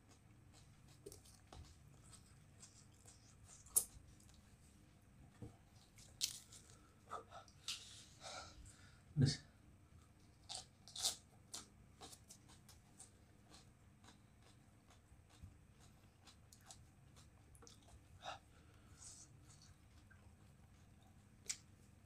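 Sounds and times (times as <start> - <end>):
crunching raw vegetables: 10.4 - 17.9.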